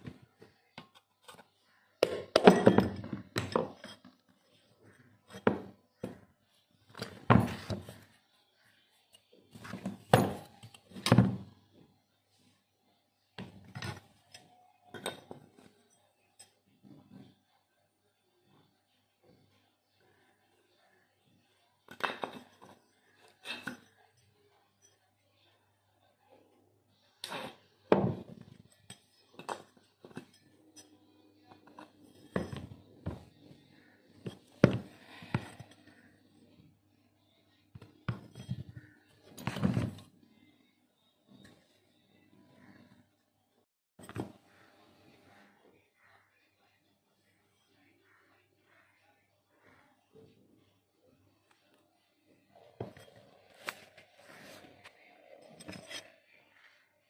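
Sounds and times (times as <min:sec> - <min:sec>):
metal parts clinking on hard floor: 0:02.1 - 0:04.1.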